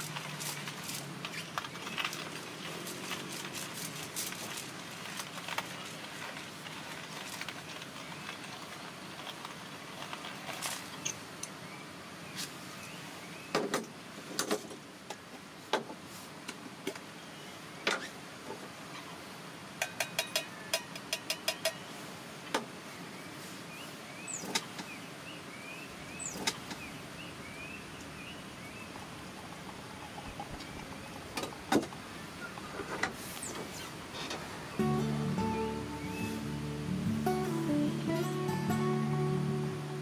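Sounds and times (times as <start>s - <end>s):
coffee grinder crunching beans: 0.0s - 10.8s.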